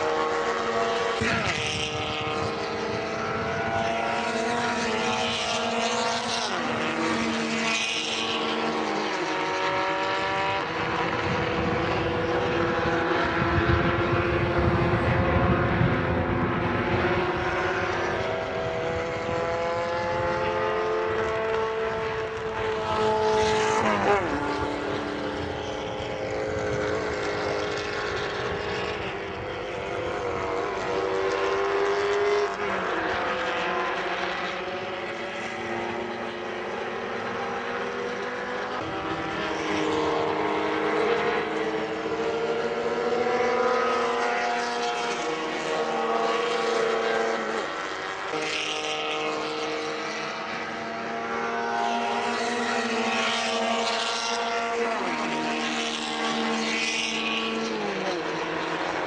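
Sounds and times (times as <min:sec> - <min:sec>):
race car engines at high revs: 0:00.0 - 0:59.0.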